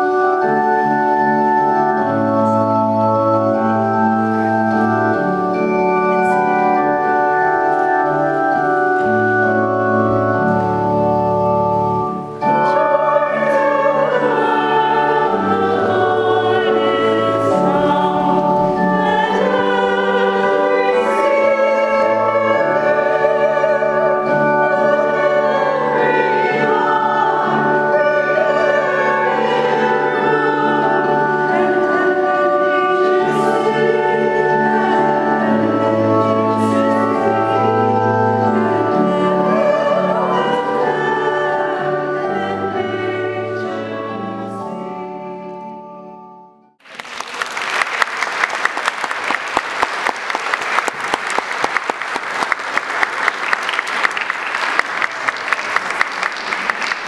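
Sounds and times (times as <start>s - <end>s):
voices singing with accompaniment: 10.4s - 45.7s
audience applauding: 46.8s - 57.0s.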